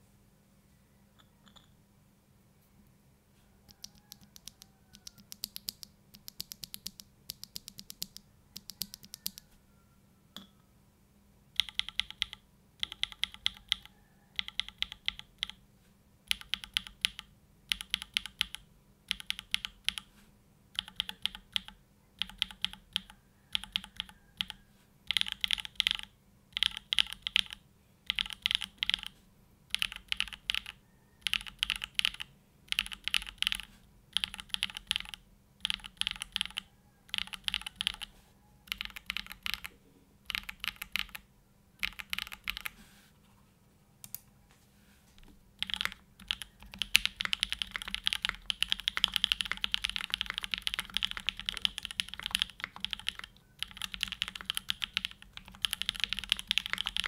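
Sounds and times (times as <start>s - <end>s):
mechanical keyboard typing: 3.7s - 9.4s, 11.6s - 15.6s, 16.3s - 20.1s, 20.8s - 29.1s, 29.7s - 38.1s, 38.7s - 39.7s, 40.3s - 41.2s, 41.8s - 42.8s, 45.6s - 57.0s.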